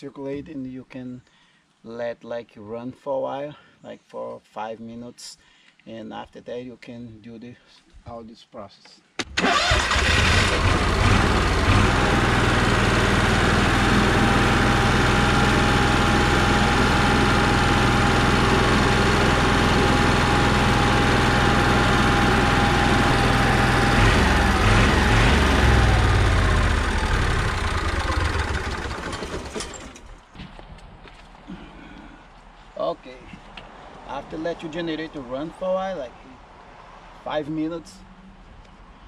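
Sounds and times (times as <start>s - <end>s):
generator running: 9.2s - 30.3s.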